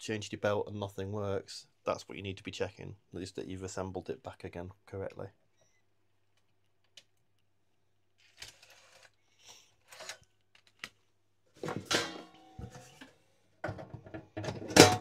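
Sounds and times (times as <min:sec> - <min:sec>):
handling clunks and rustles: 0:11.6 - 0:15.0.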